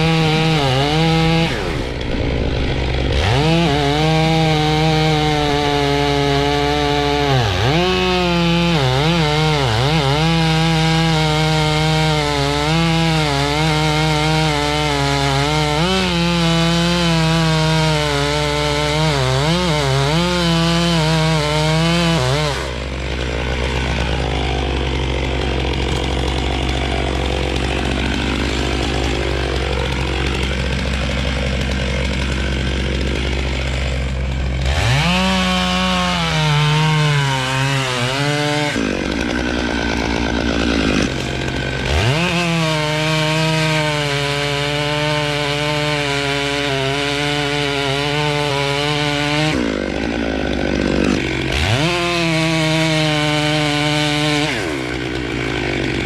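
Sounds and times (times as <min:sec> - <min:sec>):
chainsaw cutting wood: 0:00.0 - 0:56.0.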